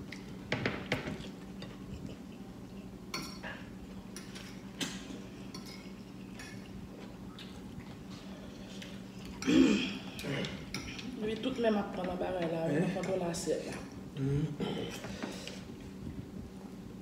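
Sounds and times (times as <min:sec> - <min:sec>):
low background hum: 0:00.0 - 0:17.0
forks clinking on plates: 0:03.1 - 0:06.7.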